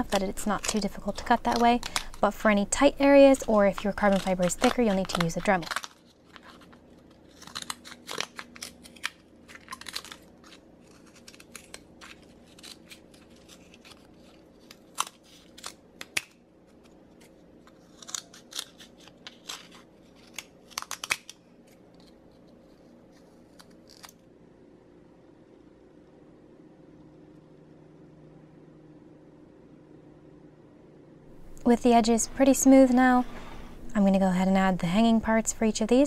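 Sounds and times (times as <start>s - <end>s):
faint steady hum: 0.0s - 36.0s
scissors cutting carbon fiber: 3.8s - 6.7s, 7.3s - 16.9s, 17.6s - 21.3s, 21.9s - 24.2s.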